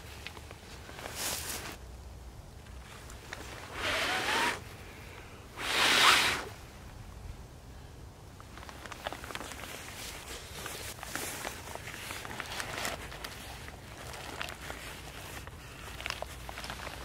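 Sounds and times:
tinder rustling: 0:00.0 - 0:01.8, 0:08.4 - 0:17.0.

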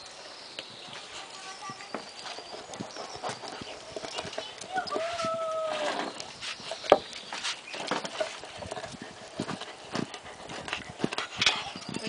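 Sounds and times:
puppy gnawing bone: 0:06.1 - 0:11.8.

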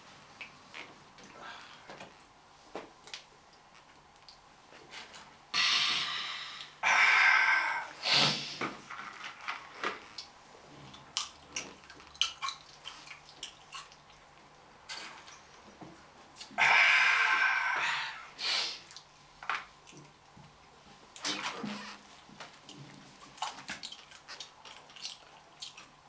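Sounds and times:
breathy exhalations: 0:05.6 - 0:08.8, 0:16.6 - 0:18.8.

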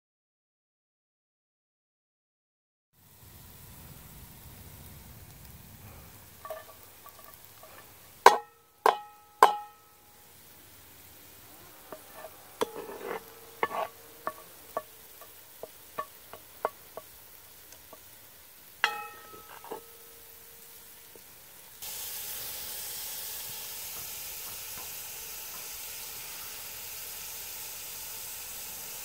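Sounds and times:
faint frying sizzle: 0:03.0 - 0:29.0
wooden spoon knocking on a pot: 0:08.2 - 0:10.0, 0:11.9 - 0:17.1, 0:18.8 - 0:19.9.

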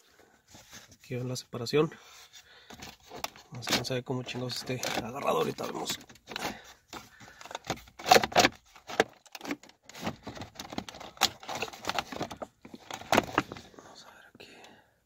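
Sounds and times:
plastic trim clicking and rattling: 0:02.7 - 0:13.6.

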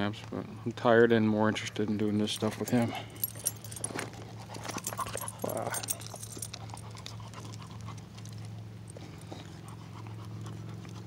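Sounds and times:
steady low hum: 0:00.0 - 0:11.0
dog panting: 0:02.5 - 0:11.0.

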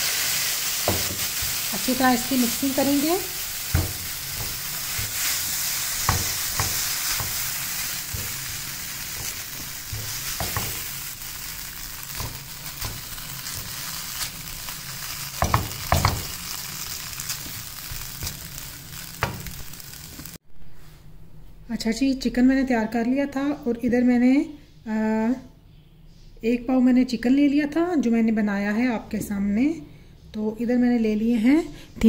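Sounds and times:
chicken sizzling in a frying pan: 0:00.0 - 0:20.4
spatula stirring and scraping: 0:00.8 - 0:20.3
knocks against the pan: 0:06.1 - 0:07.4, 0:15.4 - 0:16.3.

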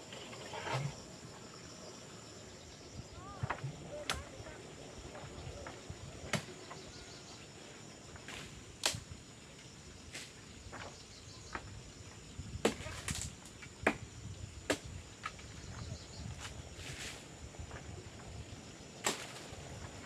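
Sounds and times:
twigs snapping: 0:19.0 - 0:19.5.

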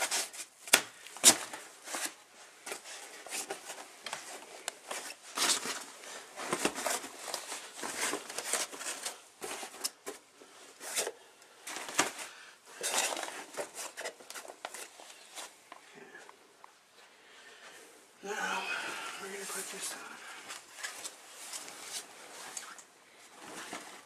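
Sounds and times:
crib parts rustling and clicking: 0:00.0 - 0:15.8.

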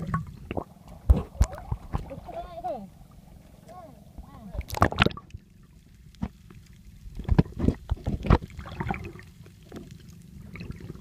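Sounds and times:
muffled underwater splashing: 0:00.0 - 0:11.0.

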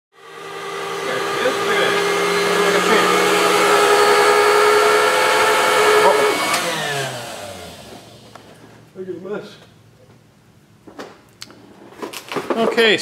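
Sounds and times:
grinder motor whining: 0:00.2 - 0:08.6.

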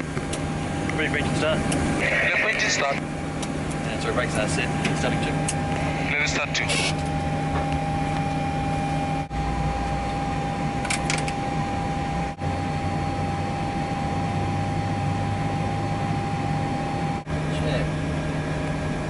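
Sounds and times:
cockpit engine hum and whine: 0:00.0 - 0:19.0.

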